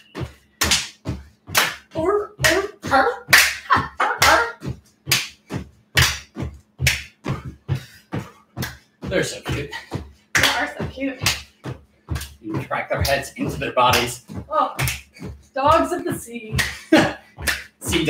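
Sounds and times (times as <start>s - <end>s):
hands clapping: 0.0s - 2.7s, 3.3s - 9.6s, 10.4s - 15.4s, 16.5s - 18.0s
feet landing on wooden floor: 4.6s - 18.0s.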